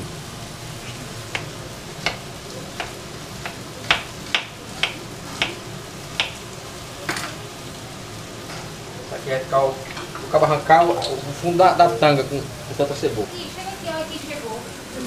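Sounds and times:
food sizzling in a pan: 0.0 - 15.0.

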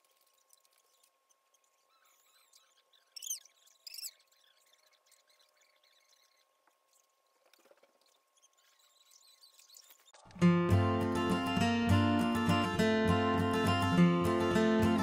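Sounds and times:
high-pitched squeaks: 0.0 - 10.4
strummed acoustic guitar music: 10.4 - 15.0.

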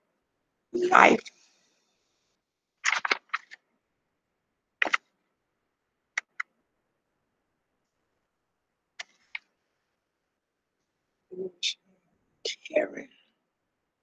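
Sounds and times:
computer mouse clicking: 6.2 - 6.5.

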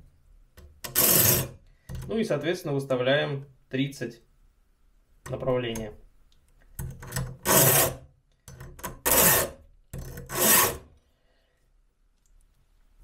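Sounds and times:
file rasping on chainsaw chain: 7.5 - 8.0, 9.1 - 9.6, 10.2 - 10.8.

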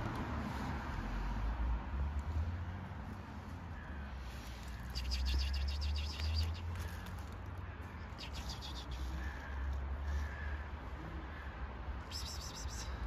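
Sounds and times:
small birds twittering: 3.3 - 10.6.

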